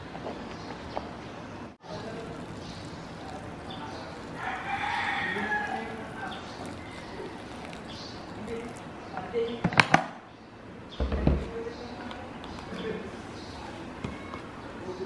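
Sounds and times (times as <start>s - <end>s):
hot water pouring into cup: 1.8s - 8.9s
rooster crowing: 4.4s - 6.4s.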